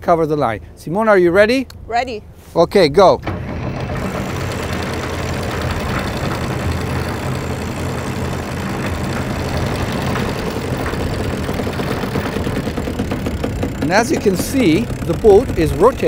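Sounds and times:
boat motor humming: 0:03.1 - 0:16.0.

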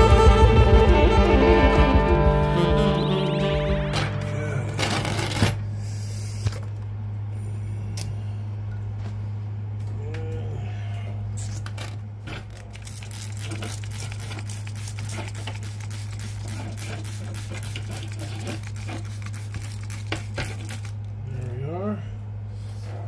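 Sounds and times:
low hum: 0:00.0 - 0:13.4
spray bottle spritzing: 0:12.7 - 0:21.0.

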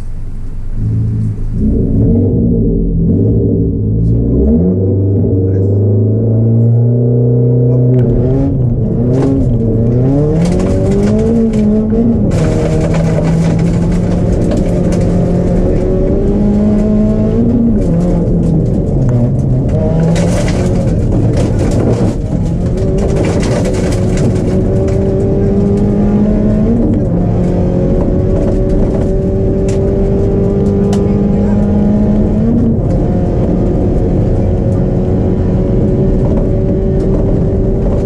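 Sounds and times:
rally car engine revving: 0:00.0 - 0:38.0
gravel noise: 0:07.7 - 0:38.0.

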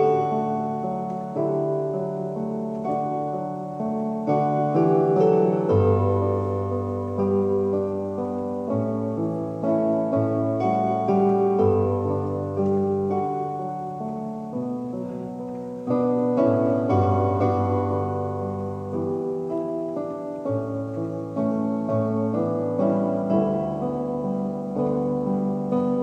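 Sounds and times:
piano playing slow chords: 0:00.0 - 0:26.0.

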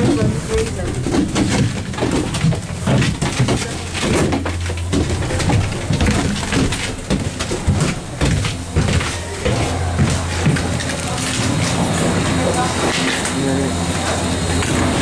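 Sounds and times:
cabin rattles and clacks: 0:00.0 - 0:11.9
gondola cabin humming: 0:00.0 - 0:15.0.

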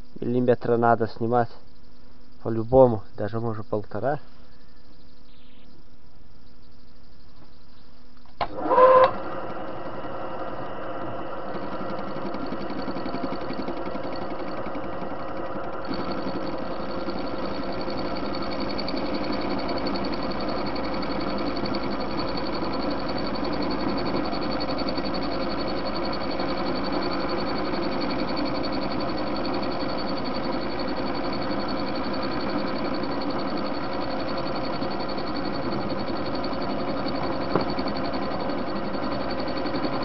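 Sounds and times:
high whine: 0:00.0 - 0:40.0
cutting tool squeal: 0:08.4 - 0:40.0
lathe running: 0:08.4 - 0:40.0.

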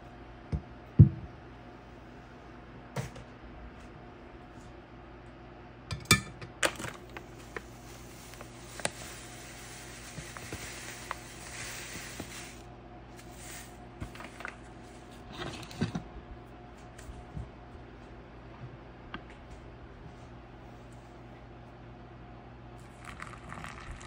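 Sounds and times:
ground coffee pouring: 0:06.9 - 0:14.6, 0:22.8 - 0:24.0.

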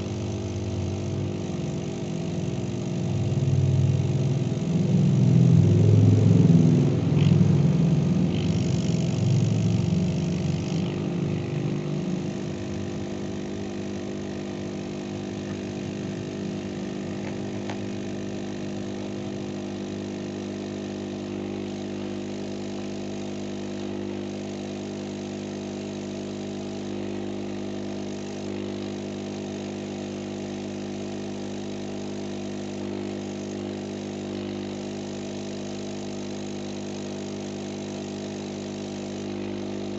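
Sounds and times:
blower humming: 0:00.0 - 0:39.9.

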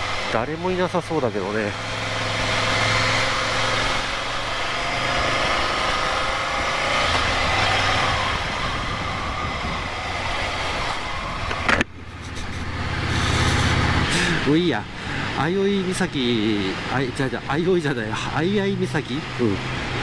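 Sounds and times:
motorcycle engine running: 0:00.0 - 0:16.6
wind noise on microphone: 0:07.1 - 0:14.1.

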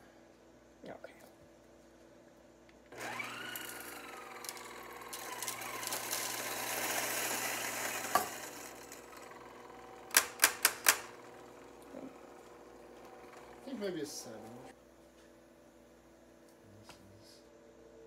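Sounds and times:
grinder whine: 0:02.9 - 0:14.8
coffee grinder grinding: 0:03.0 - 0:14.7.

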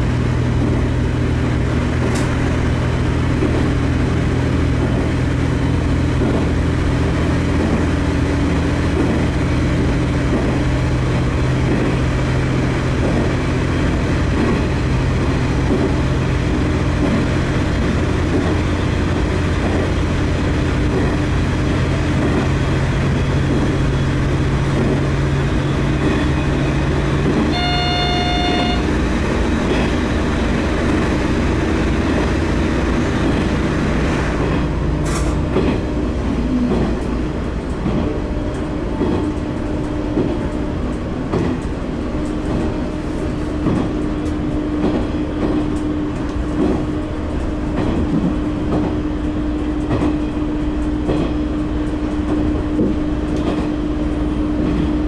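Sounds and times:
diesel railcar engine drone: 0:00.0 - 0:55.0
rail-joint clicks: 0:00.2 - 0:01.1, 0:01.7 - 0:55.0
train horn blast: 0:27.4 - 0:29.1.

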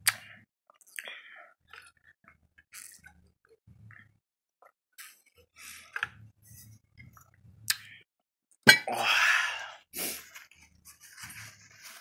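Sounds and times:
mouth smacking and clicks: 0:00.0 - 0:01.1.

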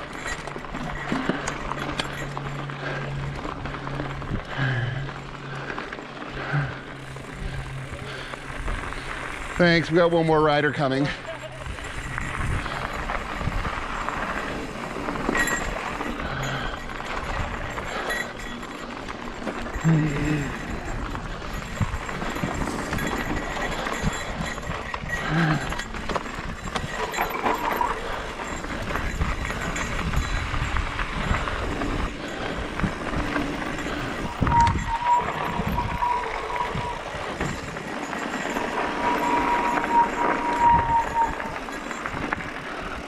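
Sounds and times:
bike tyre noise and rattles: 0:00.0 - 0:43.0
wind rumble on microphone: 0:11.6 - 0:18.6, 0:19.7 - 0:38.0, 0:38.6 - 0:43.0
steady high whine: 0:33.3 - 0:41.8.

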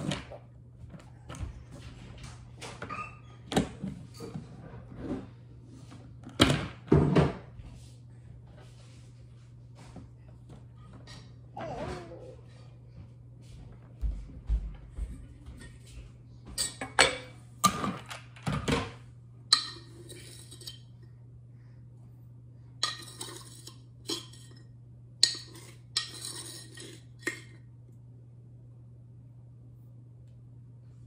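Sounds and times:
faint low hum: 0:00.0 - 0:31.0
utensils and dishes clinking: 0:16.5 - 0:18.9, 0:19.5 - 0:20.9, 0:22.8 - 0:27.6.

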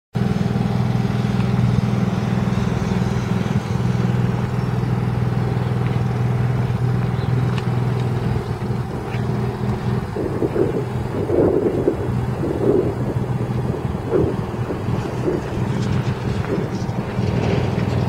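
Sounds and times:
engine idling: 0:00.2 - 0:18.0.

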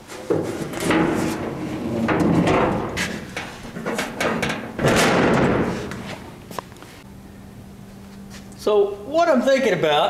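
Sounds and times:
metal clanks and rattles: 0:00.1 - 0:06.3
steel tailgate slamming shut: 0:00.3 - 0:06.0.

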